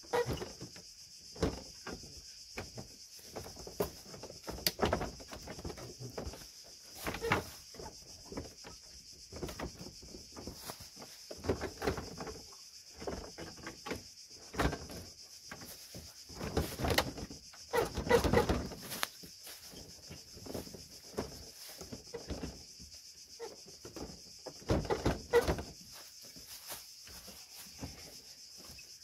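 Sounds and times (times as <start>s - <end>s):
plastic rubbing: 14.6s - 22.7s.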